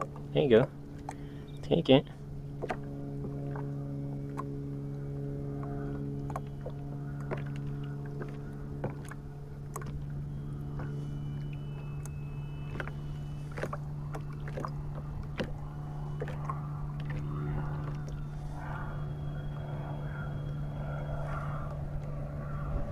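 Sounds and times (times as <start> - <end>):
water tapping against hull: 0.0 - 1.7, 2.5 - 18.5
steady low hum: 0.0 - 22.9.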